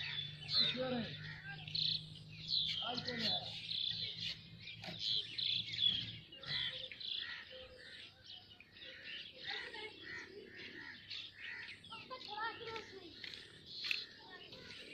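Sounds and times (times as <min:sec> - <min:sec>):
flock of birds chirping: 0:00.0 - 0:14.9.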